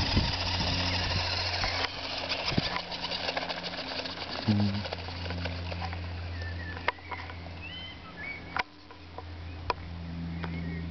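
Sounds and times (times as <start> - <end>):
small motors humming: 0.0 - 10.9
bird chirps: 6.2 - 10.9.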